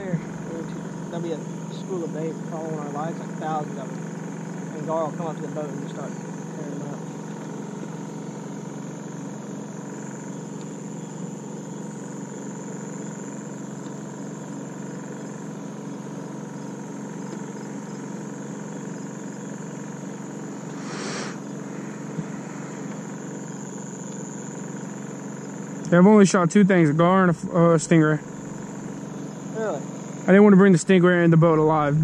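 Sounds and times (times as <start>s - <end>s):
boat engine droning: 0.0s - 32.0s.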